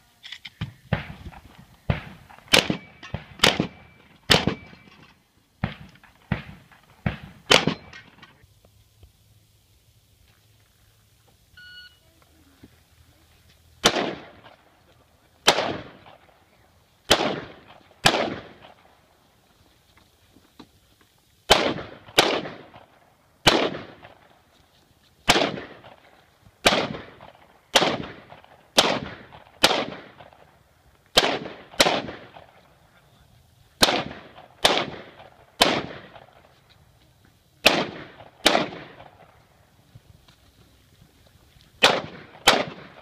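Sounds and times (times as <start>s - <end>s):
gunshots with echo: 0.9s - 4.9s, 5.6s - 8.0s, 13.8s - 14.6s, 15.4s - 16.2s, 17.1s - 18.8s, 21.5s - 24.2s, 25.3s - 26.0s, 26.6s - 30.4s, 31.2s - 32.6s, 33.8s - 36.4s, 37.6s - 39.3s, 41.8s - 43.0s
shot timer beep: 11.6s - 12.0s.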